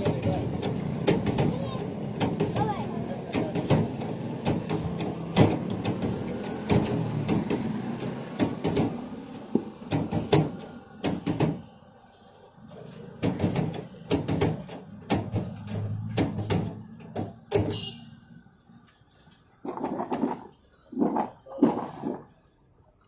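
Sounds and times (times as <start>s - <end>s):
fry cutter clunking: 0.0s - 11.8s, 13.1s - 17.9s.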